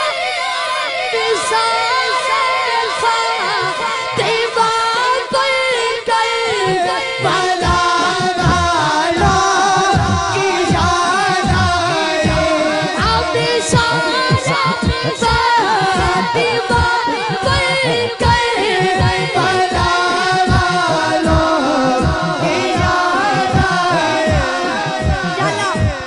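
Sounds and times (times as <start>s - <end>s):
boy singing into microphone: 0.0s - 26.0s
short low beats: 6.6s - 26.0s.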